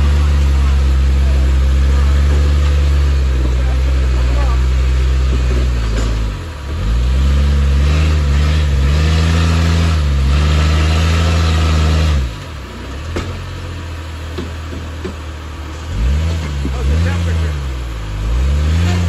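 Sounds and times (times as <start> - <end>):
engine revving and idling: 0.0 - 19.0.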